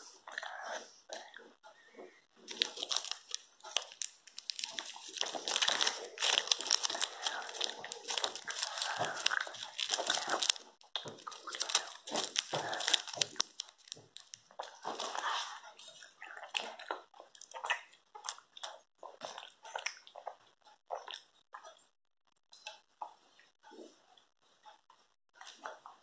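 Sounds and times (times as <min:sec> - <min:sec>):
child chewing with mouth open: 0:00.0 - 0:26.0
mouth clicks and smacks: 0:02.5 - 0:21.4.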